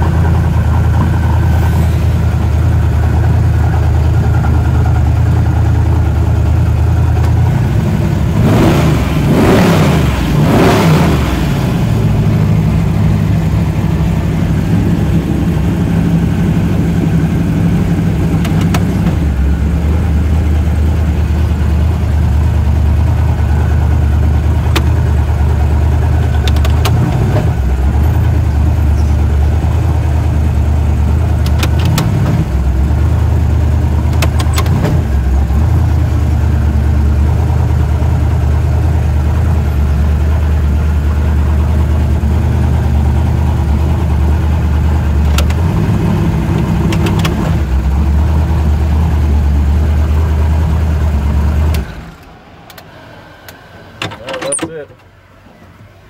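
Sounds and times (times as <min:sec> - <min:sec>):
car engine running at low revs: 0:00.0 - 0:56.0
sharp clicks: 0:18.4 - 0:19.2, 0:26.4 - 0:27.4, 0:31.4 - 0:32.4, 0:34.1 - 0:35.0, 0:45.3 - 0:45.7, 0:46.5 - 0:47.6.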